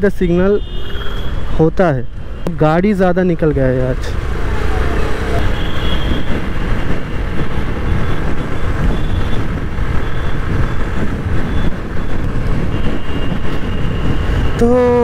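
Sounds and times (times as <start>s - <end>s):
wind buffeting microphone: 4.1s - 15.0s.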